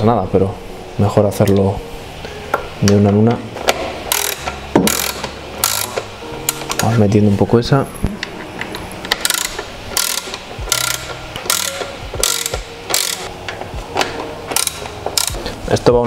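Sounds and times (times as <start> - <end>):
ratchet wrench clicking: 4.1 - 6.8, 9.1 - 13.3, 14.5 - 15.4.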